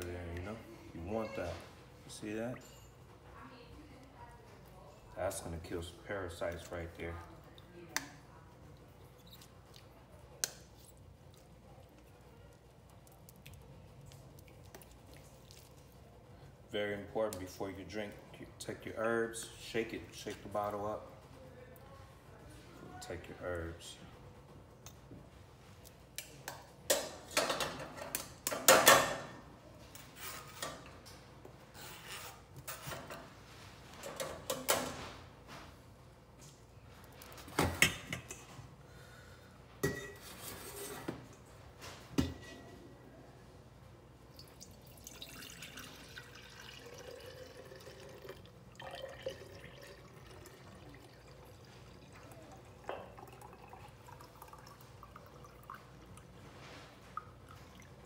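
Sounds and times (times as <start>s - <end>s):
liquid pouring and dripping: 12.8s - 16.1s, 44.3s - 58.0s
metal utensils clattering on pots: 26.9s - 29.3s.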